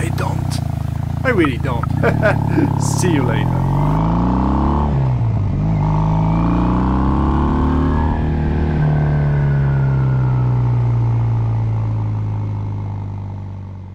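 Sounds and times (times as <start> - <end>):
motorcycle engine revving: 0.0 - 9.4.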